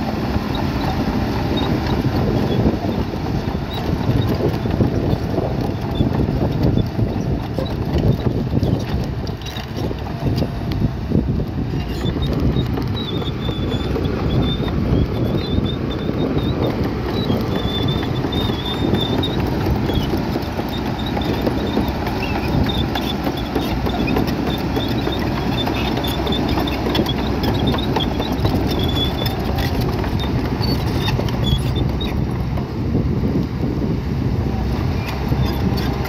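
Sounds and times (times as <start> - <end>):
clatter of tracks and rock: 0.0 - 32.8
bulldozer diesel rumble: 0.0 - 36.0.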